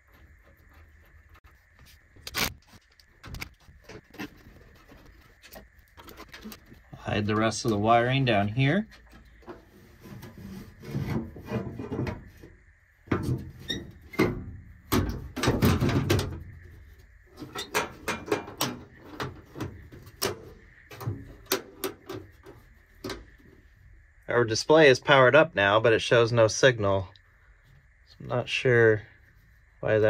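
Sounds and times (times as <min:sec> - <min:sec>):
wiring rustling and scraping: 0:00.0 - 0:23.9.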